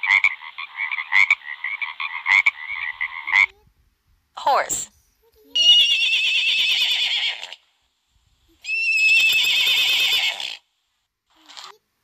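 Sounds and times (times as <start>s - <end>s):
horse neighing: 5.6s - 7.6s, 8.6s - 10.6s.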